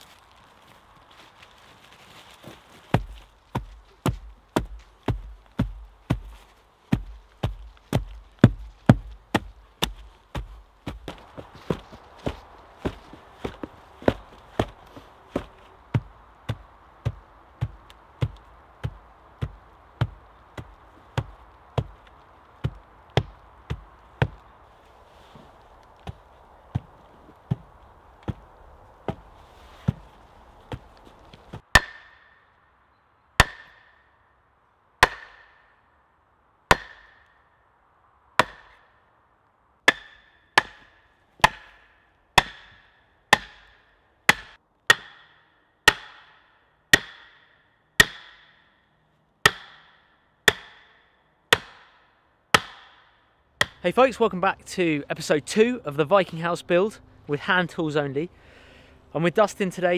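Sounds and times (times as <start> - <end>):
hand tools striking wood: 2.9 - 24.4, 30.7 - 32.4, 33.4 - 34.0, 35.0 - 35.7, 36.7 - 37.3, 38.4 - 38.9, 39.9 - 48.7, 49.4 - 53.8.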